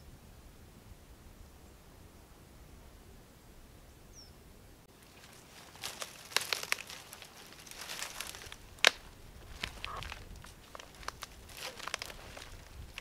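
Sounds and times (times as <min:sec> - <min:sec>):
brushwood rustling: 0:04.9 - 0:13.0
dry branches snapping: 0:04.9 - 0:13.0.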